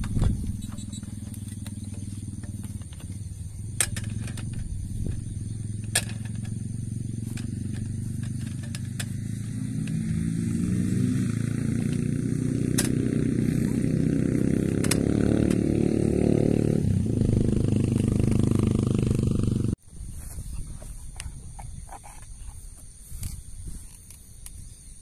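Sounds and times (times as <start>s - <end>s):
engine running: 0.0s - 19.8s.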